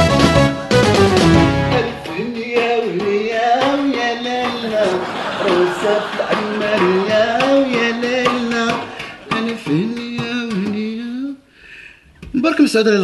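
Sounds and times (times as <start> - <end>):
man singing folk melody: 1.6 - 11.4
hands beating a tray: 2.1 - 11.2.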